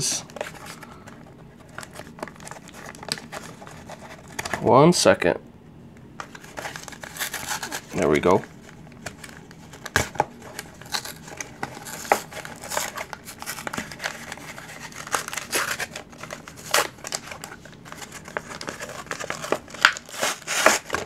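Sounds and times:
blister pack crinkling: 6.2s - 21.0s
packaging ripping: 6.3s - 8.1s, 9.0s - 21.0s.

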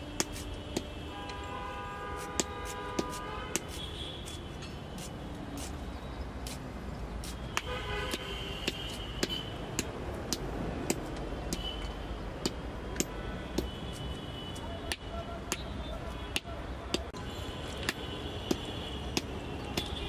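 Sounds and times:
vehicle horns tooting: 0.0s - 5.1s, 7.4s - 9.8s, 12.9s - 20.0s
low traffic rumble: 0.0s - 20.0s.

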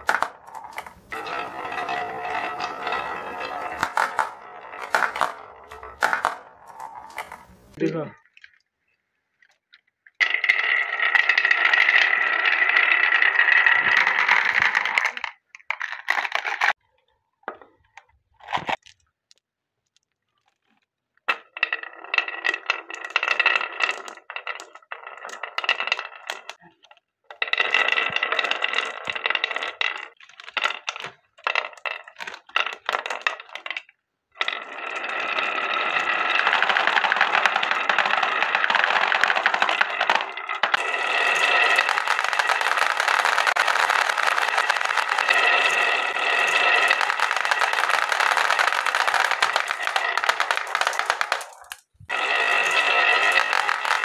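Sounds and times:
marbles clicking together: 0.0s - 8.6s, 10.2s - 16.8s, 21.3s - 26.6s, 34.4s - 54.0s
marbles rolling in wooden grooves: 0.0s - 16.8s, 17.5s - 54.0s.

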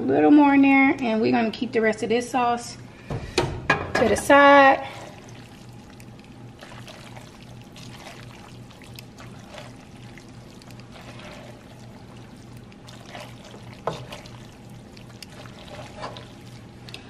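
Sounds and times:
wet squelches of noodles: 4.8s - 17.0s.

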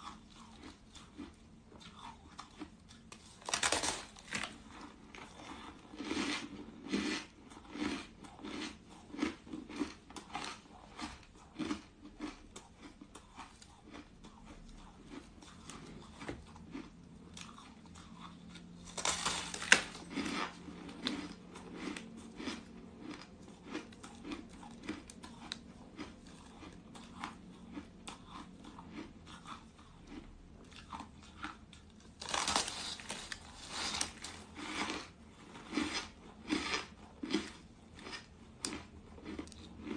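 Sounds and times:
crackling chewing: 0.0s - 39.9s
crunchy bites into ice: 18.9s - 21.2s, 32.2s - 35.1s.

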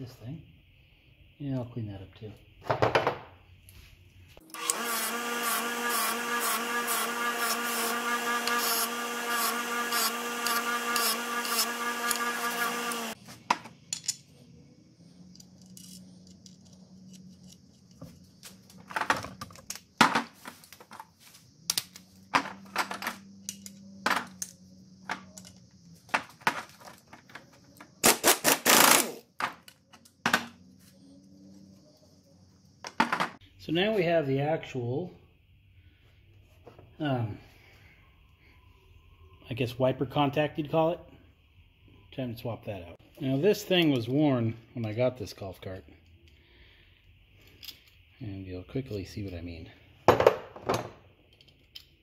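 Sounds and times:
small power tool whirring: 4.4s - 13.2s
small metal parts clicking: 15.2s - 18.4s, 22.9s - 24.6s, 47.4s - 48.1s, 51.2s - 52.0s.

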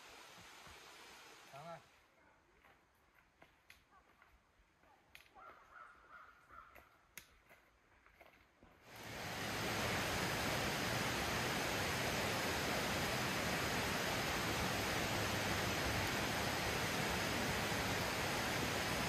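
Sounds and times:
loud steady rushing noise: 8.9s - 19.0s.

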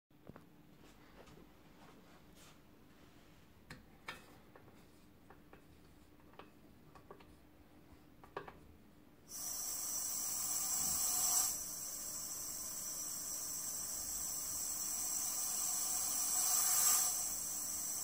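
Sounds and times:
air compressor buzzing hiss: 9.3s - 18.0s.

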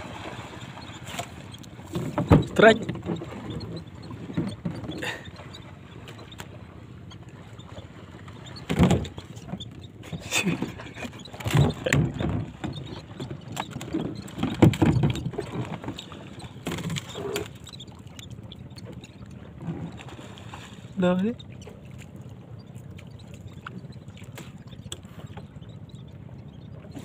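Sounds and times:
wind: 0.0s - 27.0s
knocks on boat hull: 8.6s - 9.2s.

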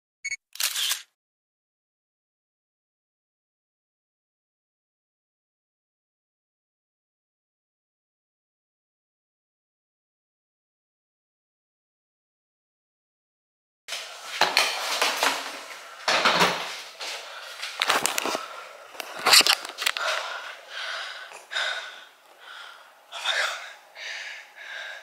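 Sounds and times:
suitcases knocking and clattering: 14.4s - 16.8s.

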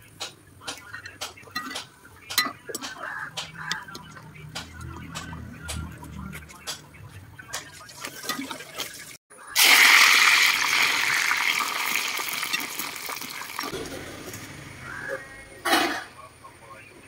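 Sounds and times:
ladle clinking in a pan: 0.9s - 3.0s
hot oil sizzling in a wok: 9.6s - 13.7s.

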